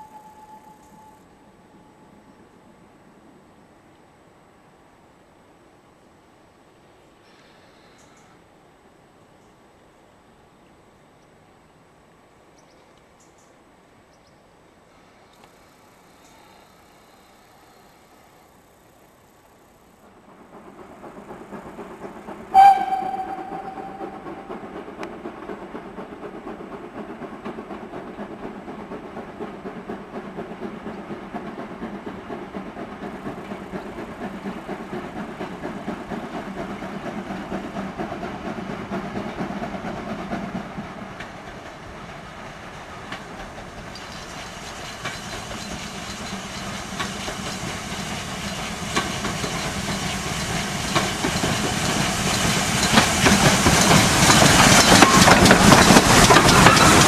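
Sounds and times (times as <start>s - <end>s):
steam locomotive approaching: 0.0s - 11.0s, 11.7s - 57.0s
steam hissing: 20.4s - 57.0s.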